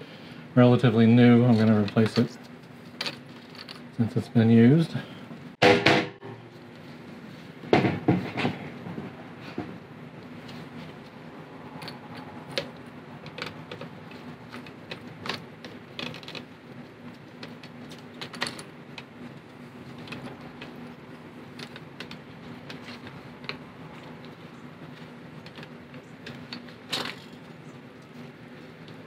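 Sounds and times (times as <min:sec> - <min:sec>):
steady low hum: 0:00.0 - 0:29.0
plastic parts clicking and clattering: 0:11.8 - 0:16.5, 0:17.4 - 0:19.1, 0:24.2 - 0:27.5.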